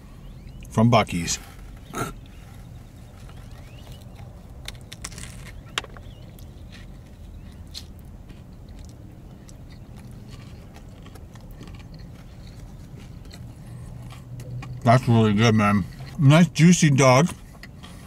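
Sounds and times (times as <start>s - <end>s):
car interior hum: 0.0s - 18.0s
person chewing food: 1.6s - 14.9s, 15.8s - 16.2s, 17.3s - 18.0s.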